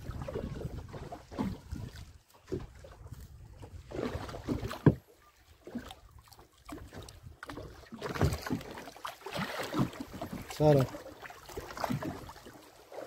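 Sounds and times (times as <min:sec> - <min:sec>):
wind on microphone: 0:00.0 - 0:04.9
water slapping boat hull: 0:00.0 - 0:13.0
boat and fishing gear knocks: 0:04.5 - 0:05.0.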